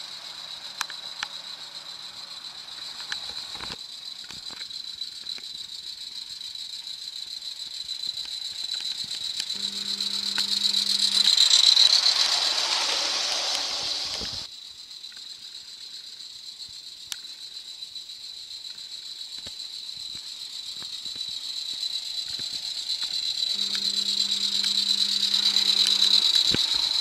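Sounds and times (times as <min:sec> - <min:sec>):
wheels clicking on track: 0:08.7 - 0:14.5, 0:22.4 - 0:27.0
steam locomotive hissing and rattling: 0:11.0 - 0:14.5.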